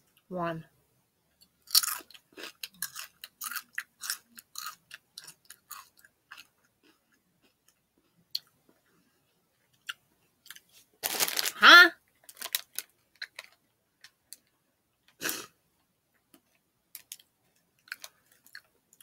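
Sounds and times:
crunchy chip chewing: 1.6 - 8.5, 9.8 - 11.6, 12.3 - 14.4.

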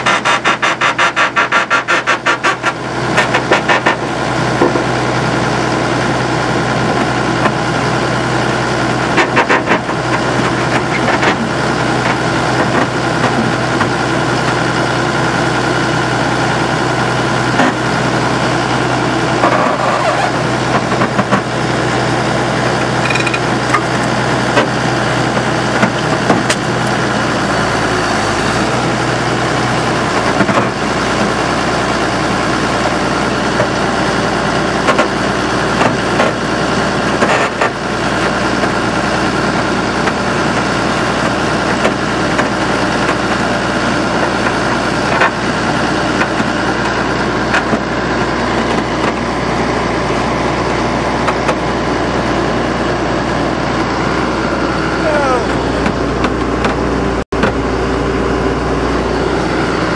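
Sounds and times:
hydraulic baler humming: 0.0 - 59.9.

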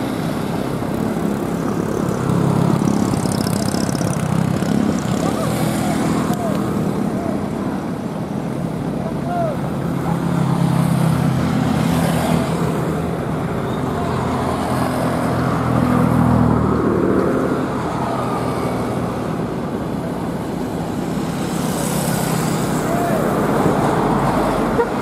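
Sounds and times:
road traffic: 0.0 - 25.0.

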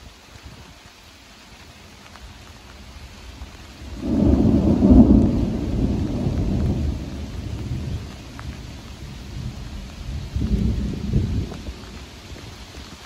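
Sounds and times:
steady background hiss: 0.0 - 13.0
thunder rumbling: 3.3 - 12.3.

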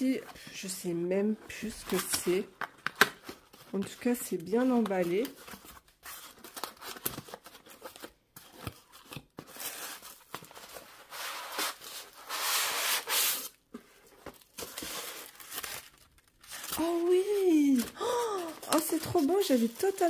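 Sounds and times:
cardboard and foam rustling: 3.2 - 20.0
cardboard tearing: 14.4 - 17.2.

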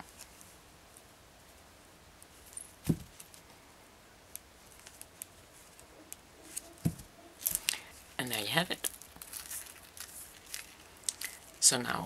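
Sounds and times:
soft thump: 2.8 - 3.1, 6.8 - 7.1
small metal parts clinking: 7.4 - 11.6.

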